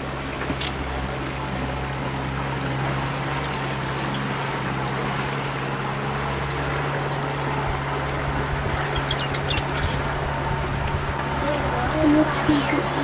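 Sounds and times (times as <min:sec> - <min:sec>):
boat engine hum: 0:00.0 - 0:13.0
bird chirps: 0:09.0 - 0:10.0.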